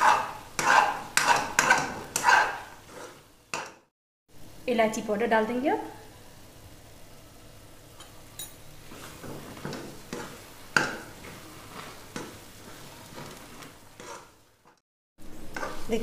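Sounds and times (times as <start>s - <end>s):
metal spatula scraping a pan: 0.0s - 3.8s, 8.8s - 14.8s, 15.5s - 16.0s
faint frying sizzle: 0.0s - 16.0s.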